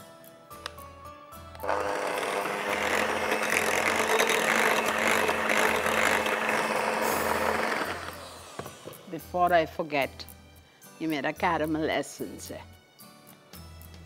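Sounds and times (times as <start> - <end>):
electric hand mixer whisking: 1.6 - 9.1.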